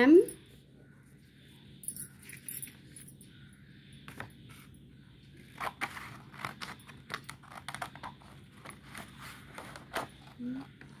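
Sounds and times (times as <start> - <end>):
scissors snipping paper: 5.4 - 10.6
paper rustling: 5.4 - 11.0.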